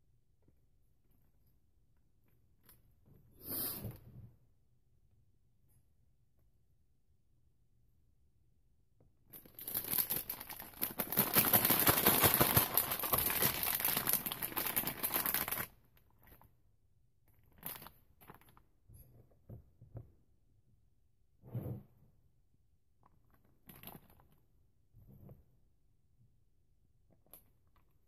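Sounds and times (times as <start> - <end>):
plastic piping bag crinkling: 9.4 - 15.7.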